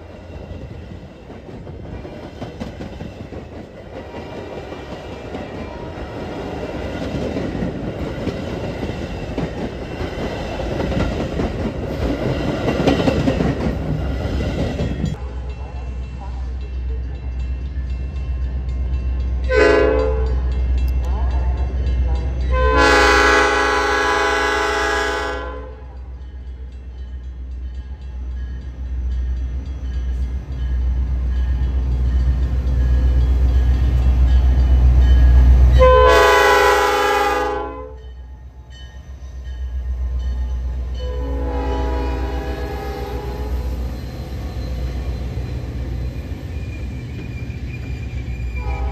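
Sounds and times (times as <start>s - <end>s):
low rumble of train: 0.0s - 48.9s
train horn blowing: 19.5s - 20.4s, 22.5s - 26.0s, 35.8s - 38.1s, 41.0s - 43.6s, 48.5s - 48.9s.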